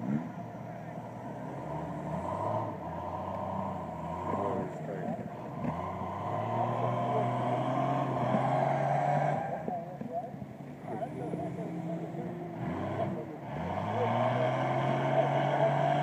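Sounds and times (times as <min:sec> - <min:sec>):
background voices: 0:00.0 - 0:16.0
off-road vehicle engine running: 0:00.0 - 0:16.0.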